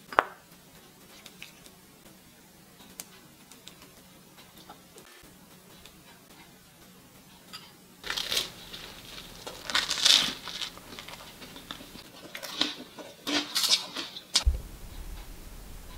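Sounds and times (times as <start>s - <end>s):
baguette crunching: 8.0s - 14.5s.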